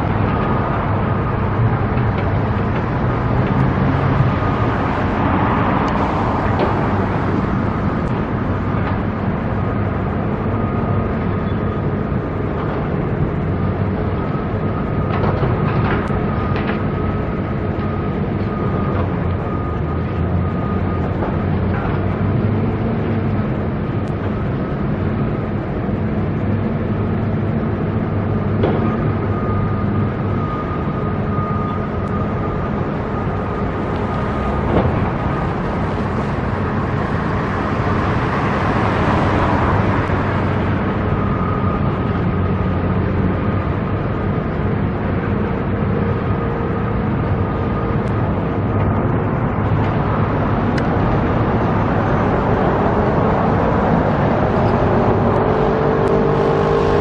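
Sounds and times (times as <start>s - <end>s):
engines humming: 0.0s - 57.0s
vehicle speeding up: 49.3s - 57.0s
vehicle passing: 50.1s - 57.0s.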